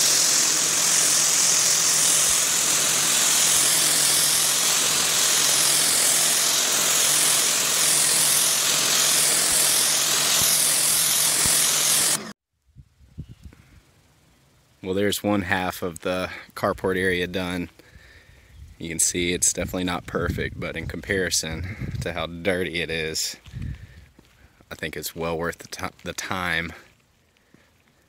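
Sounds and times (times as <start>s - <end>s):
pressure washer jet hissing on concrete: 0.0s - 12.3s
pump humming: 0.0s - 12.3s.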